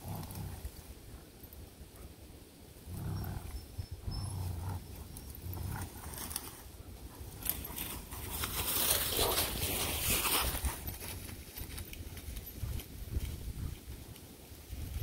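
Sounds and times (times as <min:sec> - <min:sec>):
dogs growling: 0:00.0 - 0:00.8, 0:02.9 - 0:06.6
dry leaves crackling: 0:07.4 - 0:12.4.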